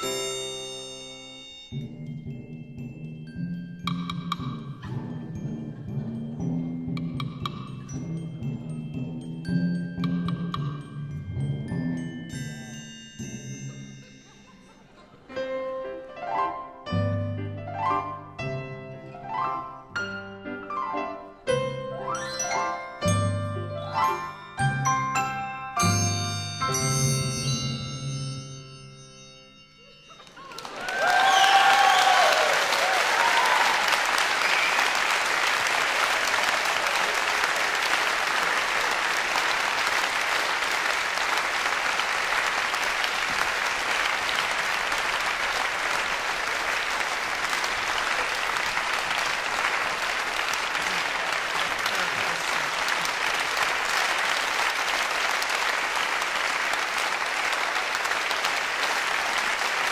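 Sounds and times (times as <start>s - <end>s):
audience applause: 30.2s - 59.9s
shouted cheers: 30.5s - 35.1s, 35.8s - 37.5s.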